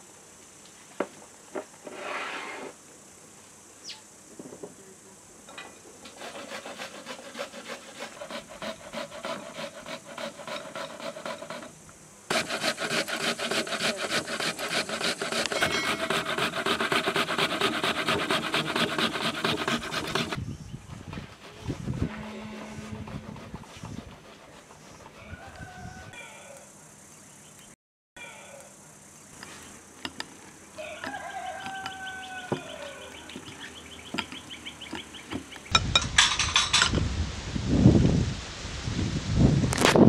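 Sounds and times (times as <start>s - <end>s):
metal grater rasping: 6.2s - 11.7s, 12.3s - 20.4s, 21.1s - 25.2s.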